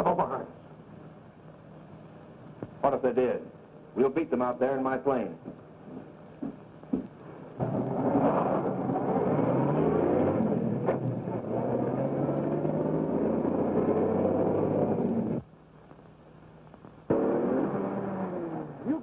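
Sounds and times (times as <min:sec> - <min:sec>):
car engine accelerating: 0:07.6 - 0:15.4, 0:17.1 - 0:19.0.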